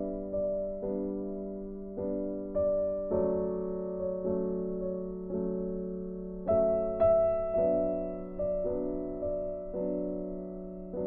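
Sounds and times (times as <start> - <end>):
soft solo piano: 0.0 - 11.0.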